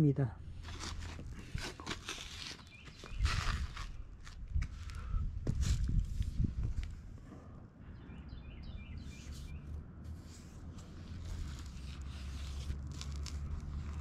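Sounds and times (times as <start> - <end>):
low outdoor rumble: 3.3 - 14.0
small bird chirping: 8.0 - 9.8.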